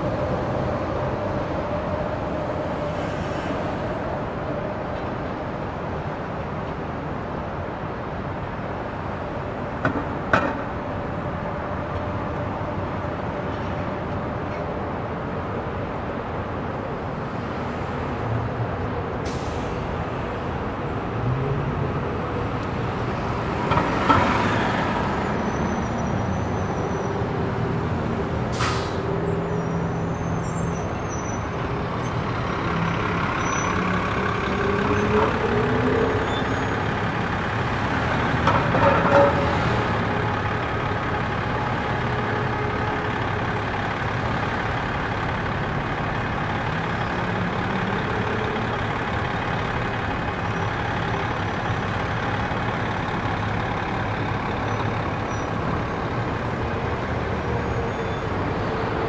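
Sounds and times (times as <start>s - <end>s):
passing vehicles: 0.0s - 59.0s.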